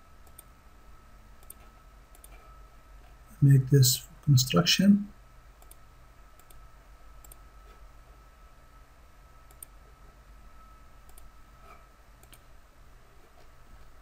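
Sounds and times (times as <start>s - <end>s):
low electrical hum: 0.0s - 14.0s
computer mouse clicks: 0.2s - 0.5s, 1.4s - 2.4s, 5.6s - 6.6s, 7.2s - 7.8s, 9.5s - 9.8s, 11.0s - 11.3s, 12.2s - 12.5s.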